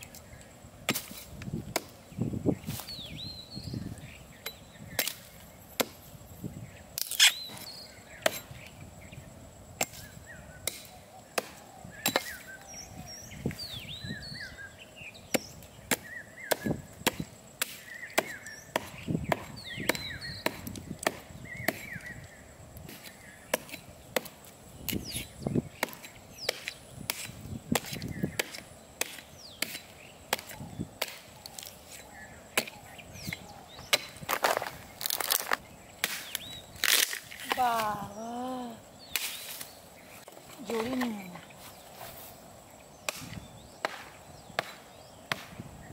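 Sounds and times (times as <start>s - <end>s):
hatchet chopping wood: 0.9s - 2.0s, 4.4s - 6.0s, 7.0s - 8.6s, 9.8s - 12.5s, 15.3s - 22.1s, 22.9s - 25.0s, 25.8s - 31.7s, 32.5s - 35.4s, 43.1s - 45.7s.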